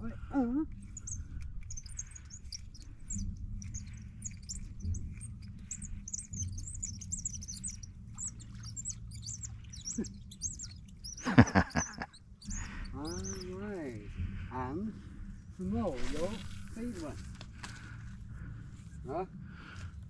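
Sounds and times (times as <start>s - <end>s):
birds chirping: 0.0s - 14.8s.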